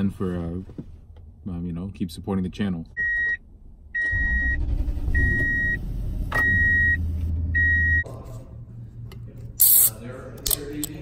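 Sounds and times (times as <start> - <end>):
vehicle warning chime beeping: 3.0 - 3.4, 4.0 - 5.8, 6.4 - 8.0.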